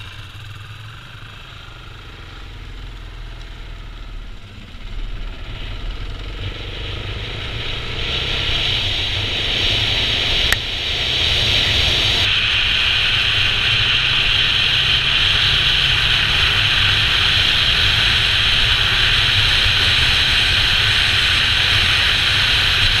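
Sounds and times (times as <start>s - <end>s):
dirt bike engine running: 0.0s - 23.0s.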